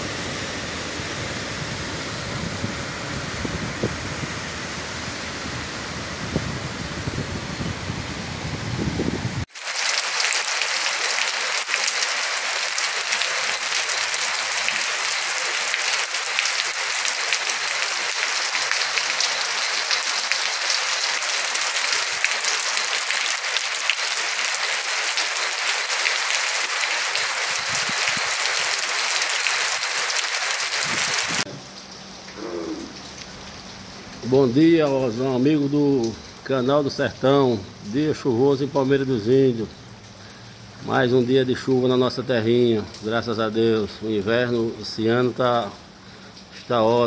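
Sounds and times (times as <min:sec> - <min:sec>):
heavy rain on hard surface: 0:00.0 - 0:47.0.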